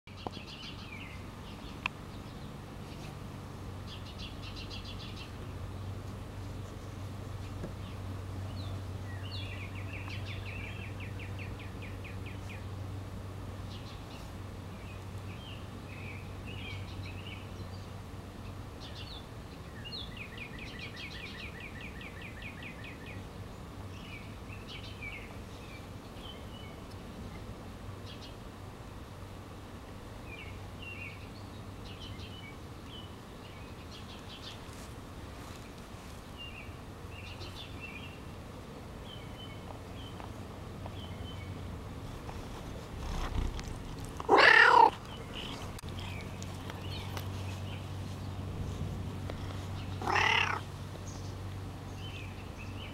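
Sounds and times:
small birds chirping: 0.1s - 28.5s, 30.2s - 52.9s
cat meowing loudly: 44.3s - 45.0s, 50.0s - 50.6s.

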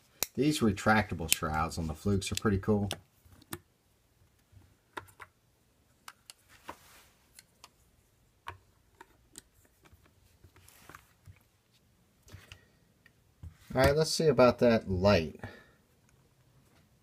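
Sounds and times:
handling rustle: 9.0s - 12.5s.

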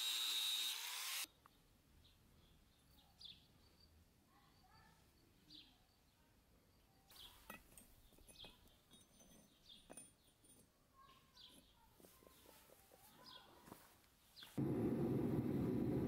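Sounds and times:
small bird chirping: 1.3s - 13.6s, 14.2s - 14.6s
forge firing with rushing noise: 14.6s - 16.0s.

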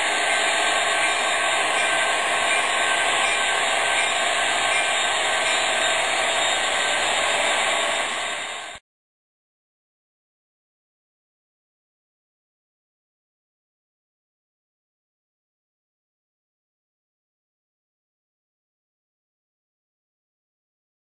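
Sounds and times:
model locomotive engine sound: 0.0s - 8.8s
model trains running on track: 0.0s - 8.8s.

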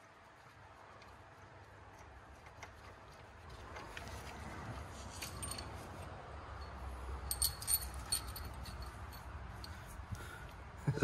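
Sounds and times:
metallic clinks of engine parts: 5.0s - 10.0s.

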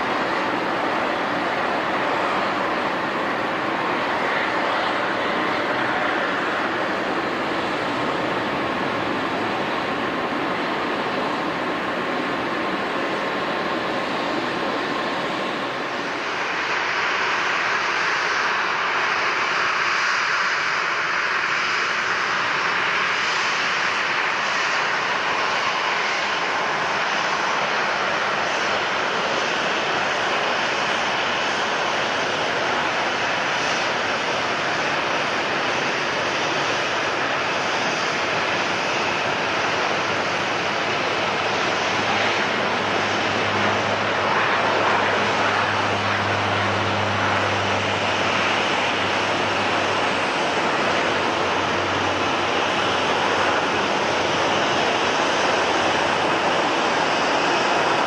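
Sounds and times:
airliner engines running: 0.0s - 58.0s.

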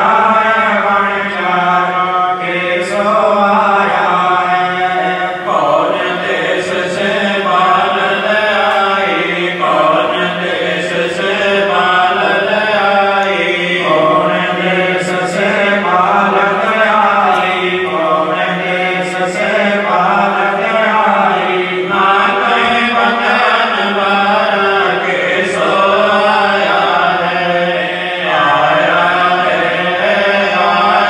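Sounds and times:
voices chanting a hymn: 0.0s - 31.0s.

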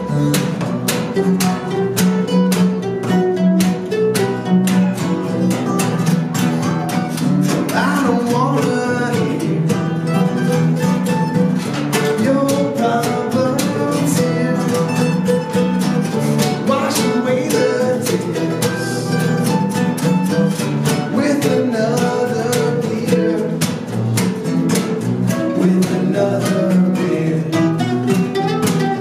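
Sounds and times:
acoustic bass guitar line: 0.0s - 29.0s
acoustic guitar strummed: 0.0s - 29.0s
man singing: 7.4s - 10.8s, 11.9s - 20.1s, 20.8s - 24.0s, 25.3s - 28.5s.

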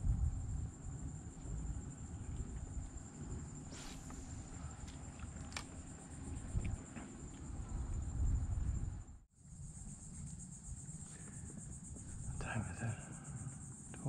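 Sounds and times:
low rumble: 0.0s - 9.3s
insect chorus drone: 0.0s - 14.0s.

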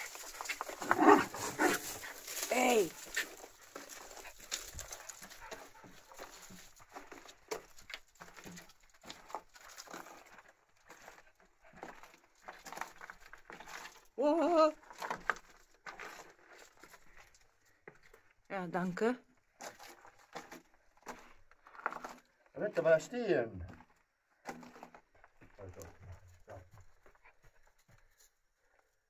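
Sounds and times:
footsteps on leaf litter: 0.0s - 8.1s.

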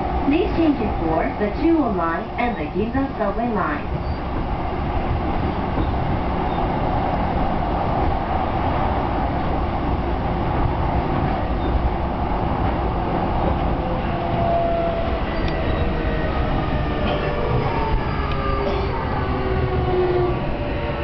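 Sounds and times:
train wheels rumbling: 0.0s - 21.0s.

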